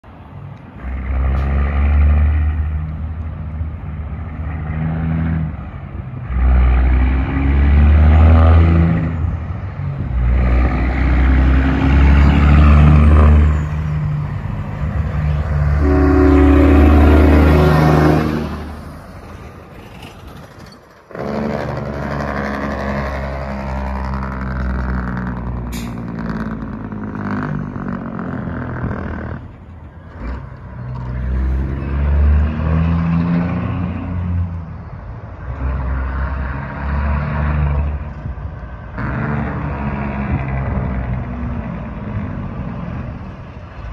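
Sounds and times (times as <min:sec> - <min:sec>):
loud diesel truck engine revving: 0:00.8 - 0:19.4, 0:21.1 - 0:43.9
air horn: 0:15.6 - 0:18.8.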